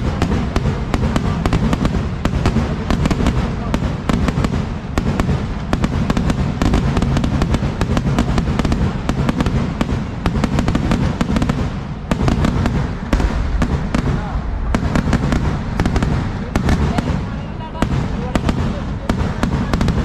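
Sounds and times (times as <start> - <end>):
firecracker bangs: 0.0 - 20.0
deep rumble: 11.9 - 18.2.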